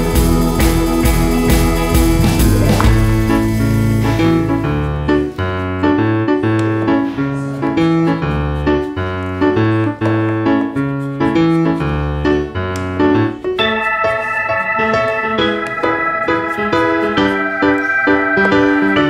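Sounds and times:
instrumental music with bass line: 0:00.0 - 0:06.0.

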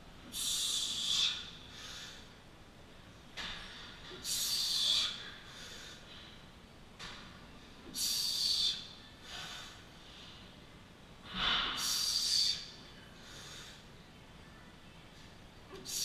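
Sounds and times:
man breathing heavily: 0:00.2 - 0:02.5, 0:04.0 - 0:06.5, 0:07.8 - 0:10.6, 0:11.2 - 0:14.0.

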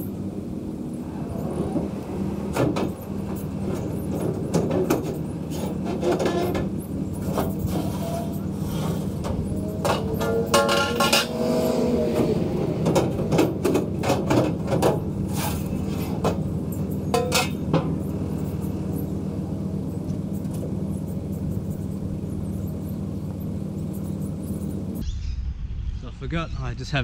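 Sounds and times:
engine idling: 0:00.0 - 0:25.0
metal ramps clanking: 0:02.5 - 0:19.1.

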